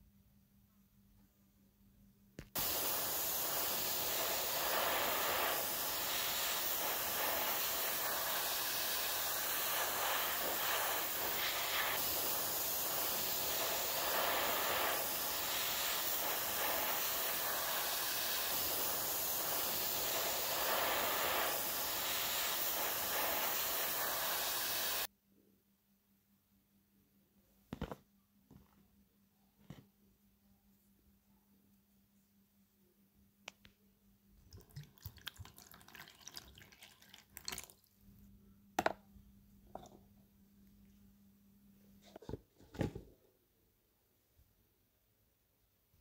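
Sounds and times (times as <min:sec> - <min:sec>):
spray paint hissing: 0:02.5 - 0:25.1.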